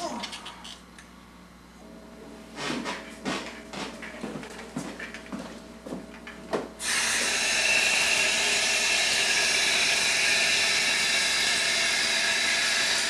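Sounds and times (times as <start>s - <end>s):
tap water running into basin: 6.8s - 13.0s.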